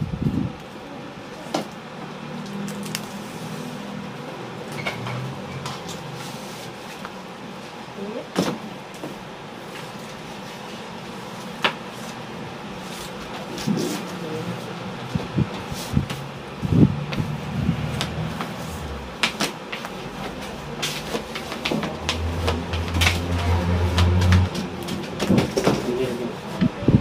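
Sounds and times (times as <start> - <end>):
steady background hum: 0.0 - 27.0
paper rustling and shuffling: 18.4 - 26.6.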